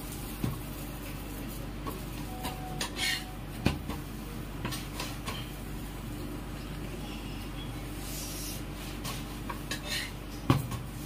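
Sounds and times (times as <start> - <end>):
dishes and cutlery clinking: 2.3 - 3.4.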